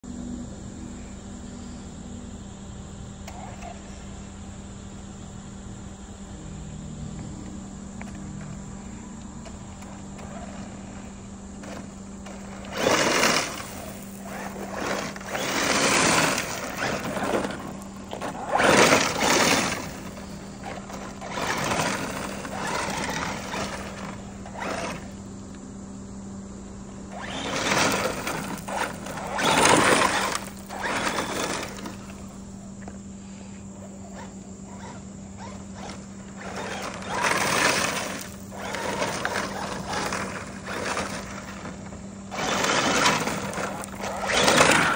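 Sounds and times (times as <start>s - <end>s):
steady low hum: 0.0s - 44.9s
rc truck electric motor: 3.2s - 4.3s, 8.0s - 25.6s, 27.0s - 33.0s, 33.6s - 44.9s.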